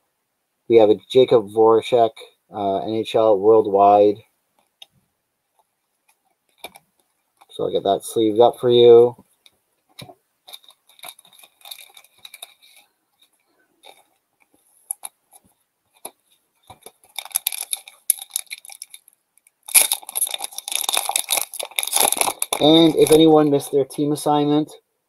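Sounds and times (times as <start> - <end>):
foil wrapper crinkling and tearing: 10.5 - 12.9, 14.9 - 15.4, 16.0 - 23.6.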